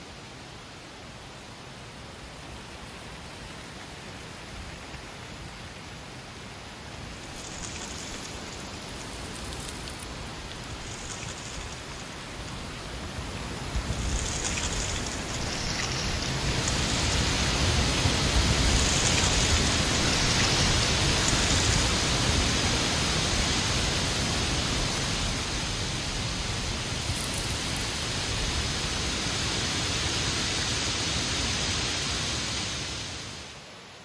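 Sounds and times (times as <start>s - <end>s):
strong wind through trees: 0.0s - 34.0s
dry leaves rustling: 7.0s - 29.5s.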